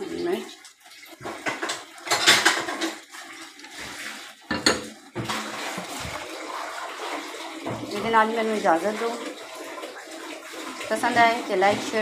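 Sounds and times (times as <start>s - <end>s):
crockery clattering: 1.4s - 3.0s, 4.5s - 4.9s.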